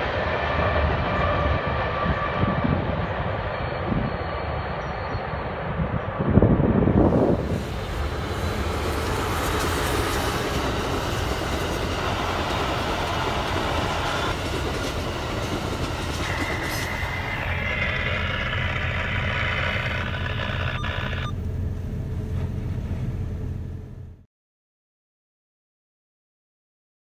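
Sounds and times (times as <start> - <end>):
train coaches rolling on rails: 0.0 - 20.9
high ringing tone: 16.2 - 21.5.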